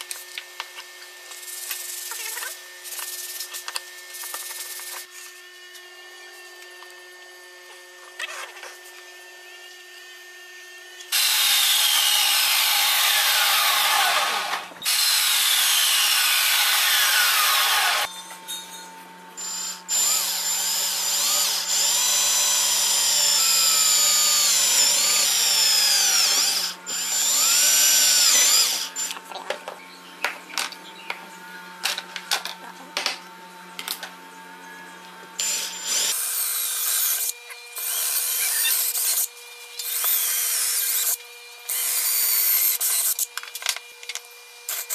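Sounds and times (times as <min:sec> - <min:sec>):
cordless drill boring into wood: 0:11.1 - 0:18.1, 0:19.4 - 0:29.2, 0:35.4 - 0:43.3.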